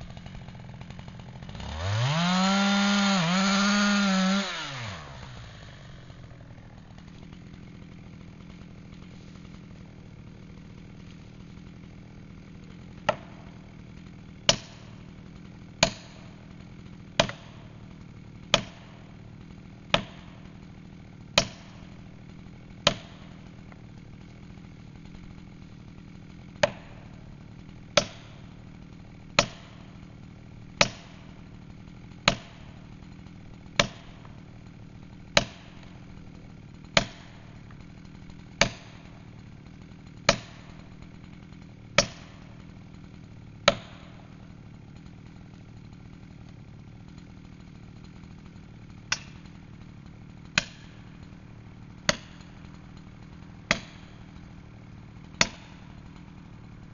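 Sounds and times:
hammer striking wedge: 49.1s - 49.4s.

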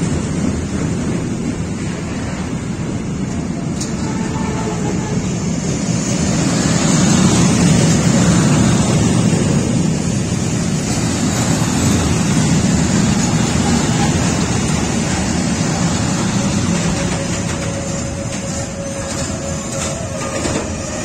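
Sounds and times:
freight train wheels rumbling on rails: 0.0s - 21.0s.

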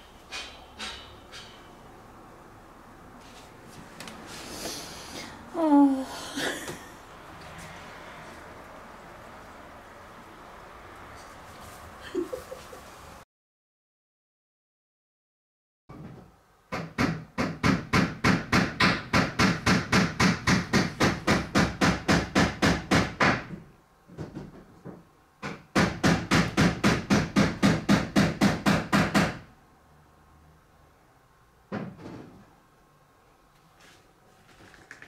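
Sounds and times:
hammering: 0.0s - 1.8s, 16.7s - 23.6s, 24.2s - 29.5s.

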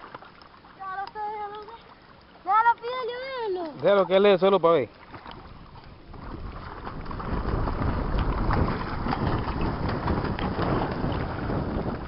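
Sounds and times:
paddle splashing water: 0.0s - 12.0s
wind rumbling on microphone: 5.3s - 12.0s.

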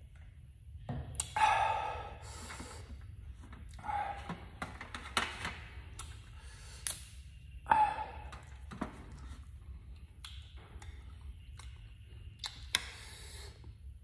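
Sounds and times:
breathing through nose: 1.4s - 3.0s, 6.3s - 7.0s, 12.8s - 13.7s.

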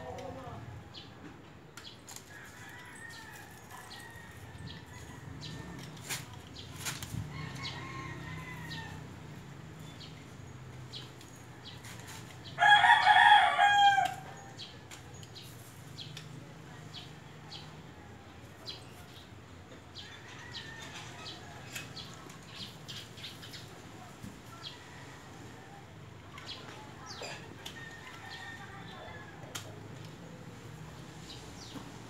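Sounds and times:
rooster crowing: 12.6s - 14.4s.

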